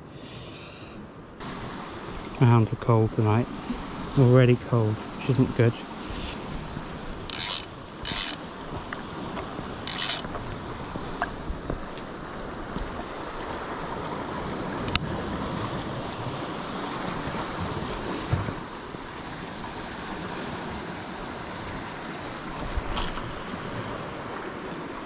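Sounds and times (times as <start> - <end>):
sea surf washing onto rocks: 1.4 - 25.0
wind buffeting the microphone: 5.0 - 24.7.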